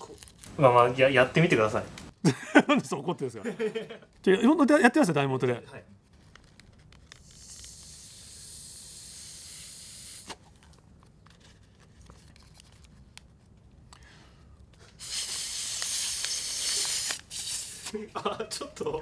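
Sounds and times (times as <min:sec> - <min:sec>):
faint clicks and rustles: 0:06.0 - 0:07.3, 0:10.4 - 0:14.9
breath blowing into paper: 0:07.2 - 0:10.4, 0:14.8 - 0:17.9.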